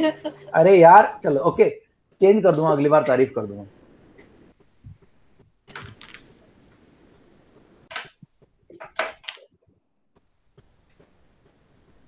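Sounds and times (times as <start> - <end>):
faint rustling and knocking: 3.7 - 12.0.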